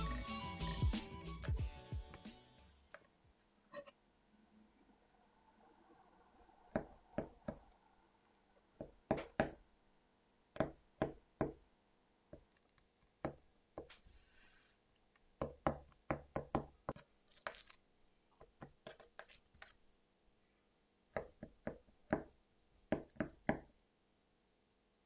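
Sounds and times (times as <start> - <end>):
crisp rustle: 17.2 - 17.8.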